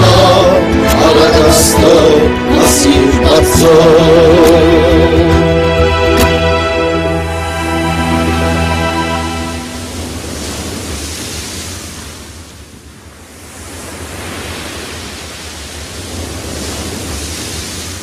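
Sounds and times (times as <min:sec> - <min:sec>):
music: 0:00.0 - 0:10.4
sea waves washing in: 0:00.0 - 0:18.0.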